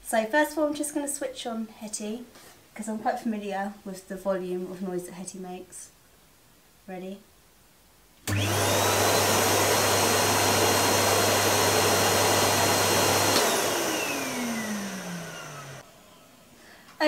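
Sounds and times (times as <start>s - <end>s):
vacuum motor winding down: 8.3s - 16.1s
vacuum cleaner running: 8.3s - 16.2s.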